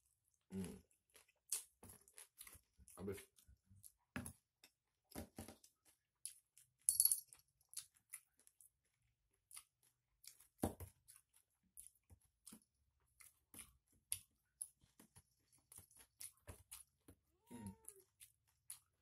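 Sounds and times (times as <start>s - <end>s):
bright jingling clink: 6.9s - 7.2s.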